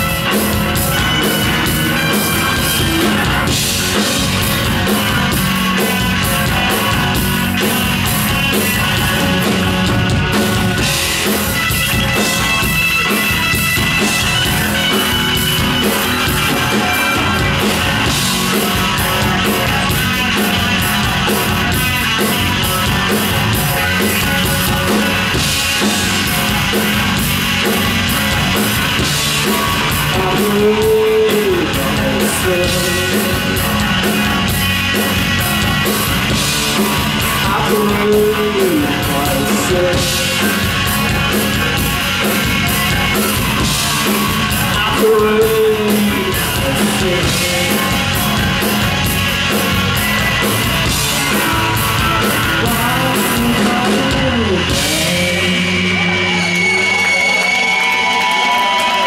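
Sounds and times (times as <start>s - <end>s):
bass guitar: 0.0s - 59.0s
drums: 0.0s - 59.0s
electric guitar: 0.0s - 59.0s.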